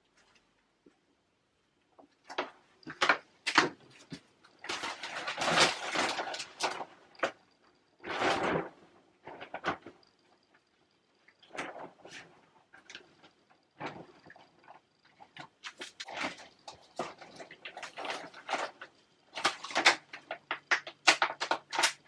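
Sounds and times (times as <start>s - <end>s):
plastic sheeting rustling: 2.3s - 7.4s, 8.0s - 10.0s, 11.4s - 22.0s.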